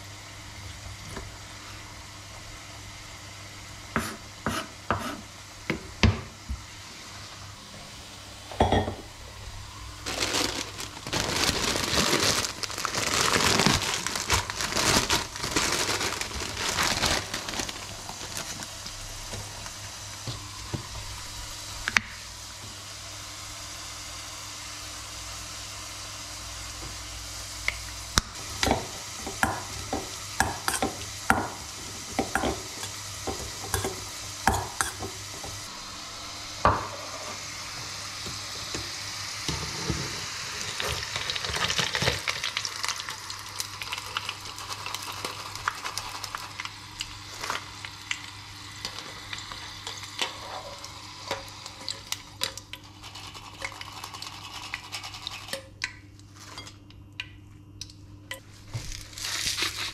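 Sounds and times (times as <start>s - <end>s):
low background hum: 0.0s - 59.9s
plastic bag crinkling: 9.9s - 19.0s, 58.8s - 59.9s.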